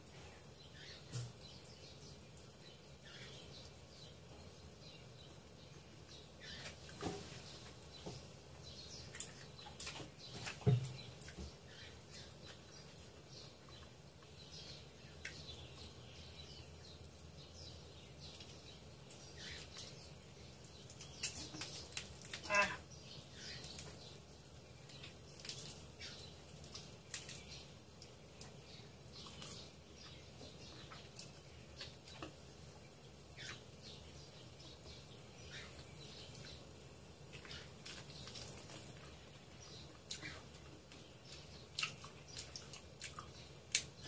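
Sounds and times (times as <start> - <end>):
wet eating smacks and sucks: 41.7 - 43.9.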